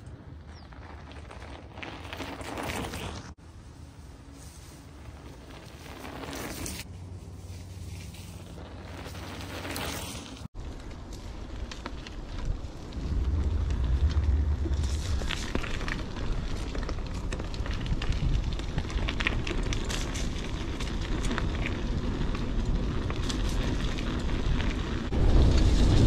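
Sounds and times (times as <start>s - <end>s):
wind rumbling on microphone: 10.5s - 26.0s
bicycle rattling and clicking: 14.0s - 25.7s.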